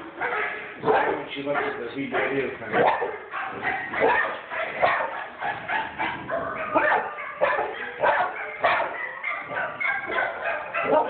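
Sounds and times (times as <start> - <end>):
dogs barking through tv speakers: 0.0 - 11.0.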